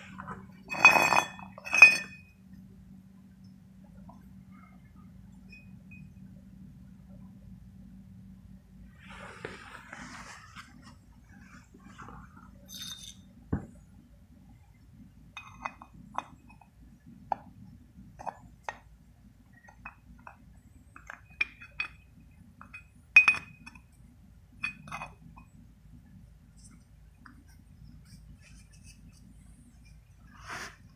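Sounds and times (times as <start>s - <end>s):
sharp ringing metallic clink: 12.7s - 13.3s
light metal clinks and taps: 12.7s - 13.7s.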